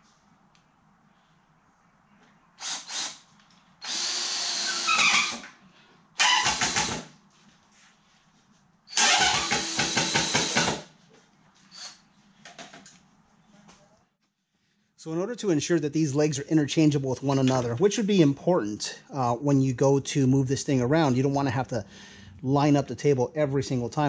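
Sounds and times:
power drill driving screws into wood: 2.6 - 3.2, 3.8 - 5.6, 6.2 - 7.1, 8.9 - 10.9.

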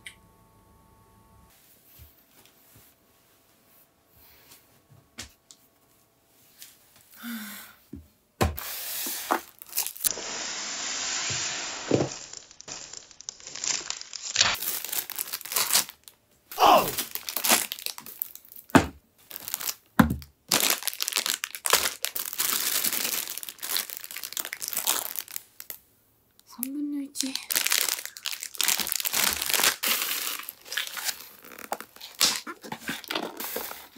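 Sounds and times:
plastic film crinkling and tearing: 9.2 - 10.2, 11.6 - 16.2, 16.8 - 25.8, 26.6 - 33.9.

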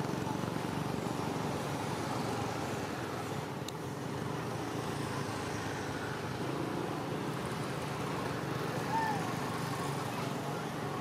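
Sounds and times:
low rumble of traffic: 0.0 - 11.0.

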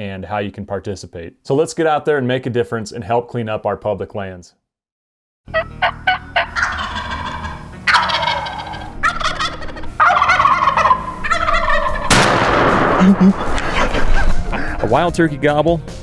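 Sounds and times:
turkeys gobbling: 5.5 - 14.8
sudden loud blast: 12.0 - 14.2.

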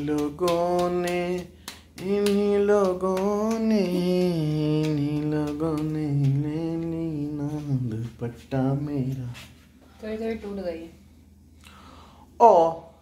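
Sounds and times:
person humming: 0.0 - 9.4.

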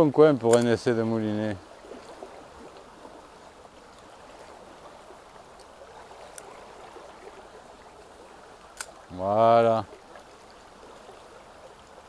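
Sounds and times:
shallow stream running: 0.0 - 12.0
light click: 0.5 - 0.8.

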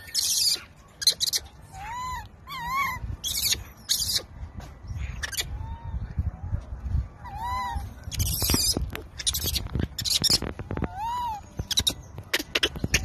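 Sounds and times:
infant monkey coo calls: 0.0 - 4.3, 5.1 - 5.9, 7.2 - 13.0.

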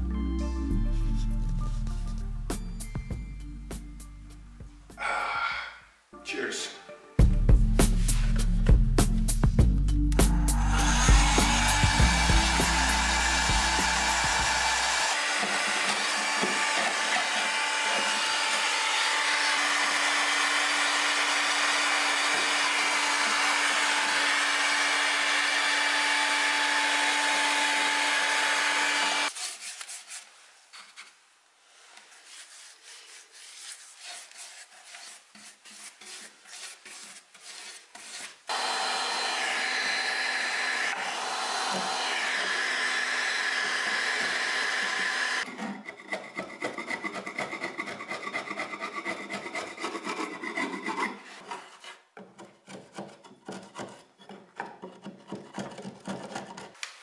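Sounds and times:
heat gun blowing hiss and hum: 10.4 - 26.7.

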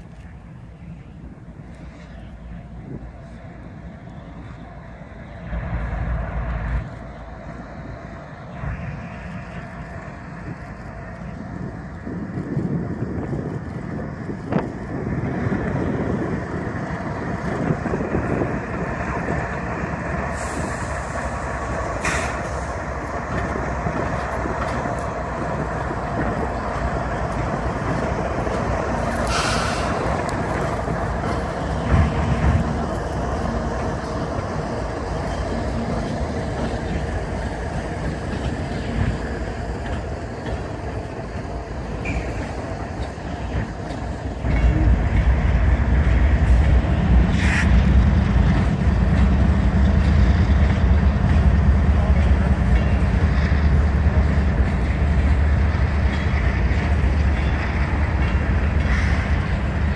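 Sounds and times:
freight train rumbling past: 0.0 - 59.9
short hisses: 29.2 - 30.0.

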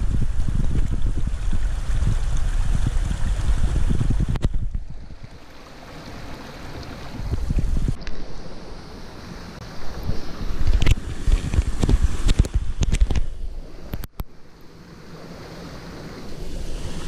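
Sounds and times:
wind buffeting microphone: 0.0 - 8.8, 9.6 - 14.2
outdoor noise: 0.0 - 17.0.

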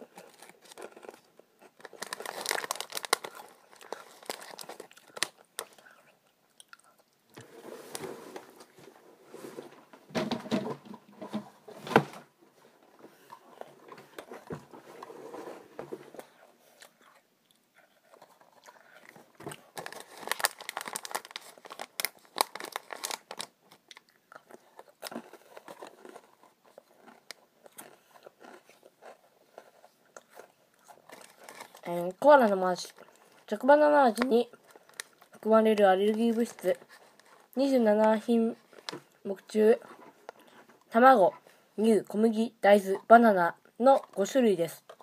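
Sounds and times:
person crunching biscuits: 0.0 - 7.2, 16.2 - 31.9, 34.5 - 35.4.

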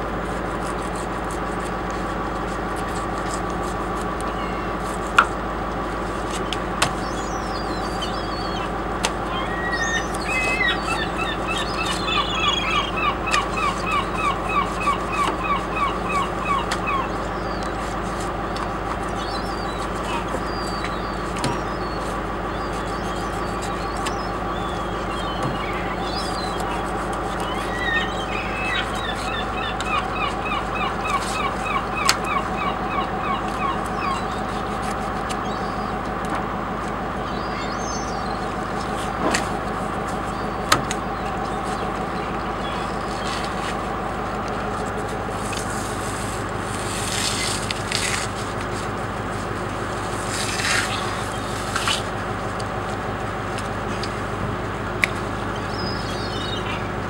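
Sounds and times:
steady mechanical hum: 0.0 - 57.0
bird calling: 0.2 - 57.0.

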